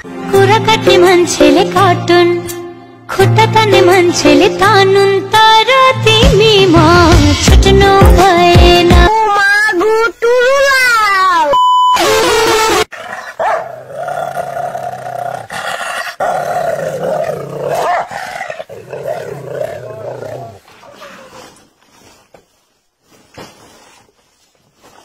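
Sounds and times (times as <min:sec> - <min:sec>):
dog growling: 0:12.9 - 0:21.4.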